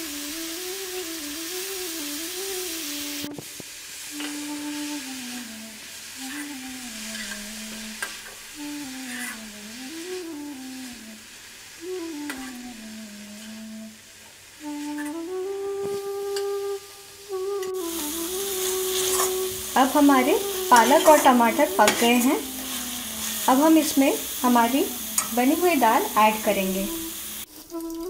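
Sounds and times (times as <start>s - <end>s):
food sizzling in a wok: 0.0s - 28.0s
slow flute-like melody: 0.0s - 28.0s
metal spatula scraping a pan: 7.1s - 9.5s, 18.6s - 26.0s.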